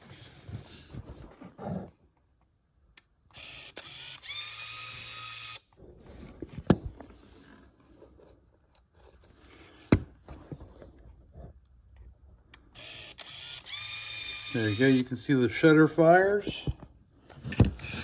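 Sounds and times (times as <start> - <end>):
sharp camera clicks: 3.3 - 5.6, 12.8 - 14.5
camera motor whirring: 3.3 - 5.7, 12.7 - 15.0, 17.6 - 18.0.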